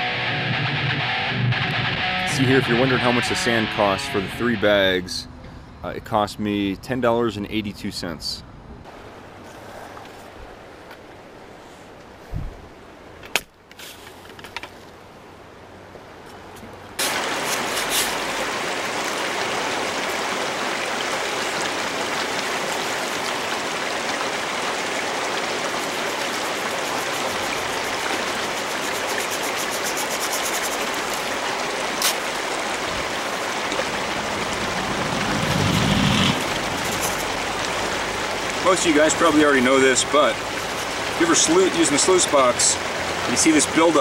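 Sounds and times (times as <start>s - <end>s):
water rushing through sluice box: 16.9s - 44.0s.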